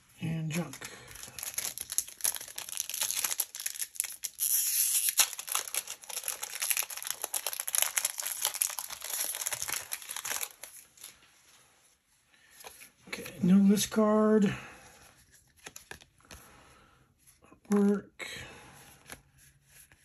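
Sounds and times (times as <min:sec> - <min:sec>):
foil wrapper crinkling and tearing: 0:00.5 - 0:11.2.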